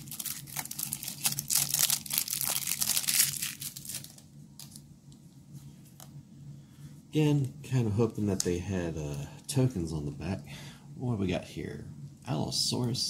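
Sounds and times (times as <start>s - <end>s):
plastic wrap crinkling and tearing: 0.0s - 4.8s.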